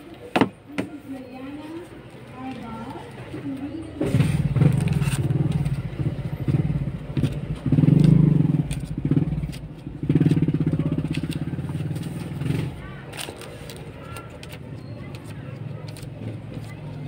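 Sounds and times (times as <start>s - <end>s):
motorcycle engine running: 4.0s - 13.1s.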